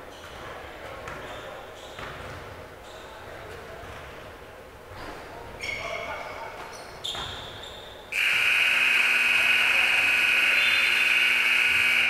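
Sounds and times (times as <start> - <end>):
scoreboard buzzer: 8.2 - 12.0.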